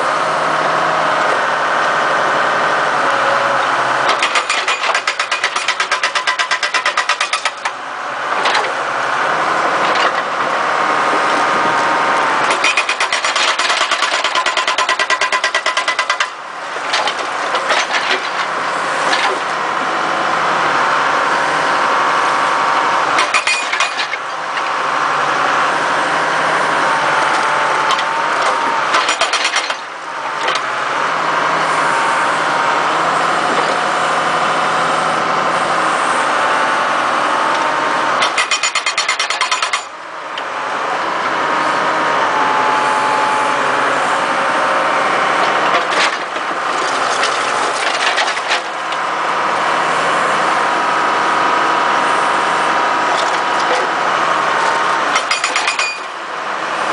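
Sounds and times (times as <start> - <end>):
excavator engine and hydraulics whining: 0.0 - 56.9
hydraulic hammer breaking stone: 4.1 - 7.8, 12.5 - 19.5, 23.2 - 24.3, 27.3 - 30.6, 38.2 - 40.0, 45.6 - 48.8, 55.1 - 56.2.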